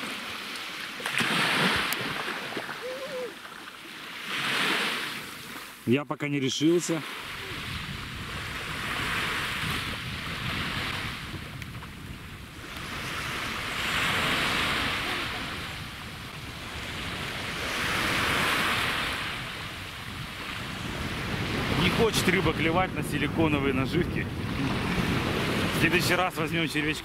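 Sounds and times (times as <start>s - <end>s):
sea waves breaking on sand: 0.0s - 5.8s, 6.6s - 27.0s
wind rumbling on microphone: 7.2s - 27.0s.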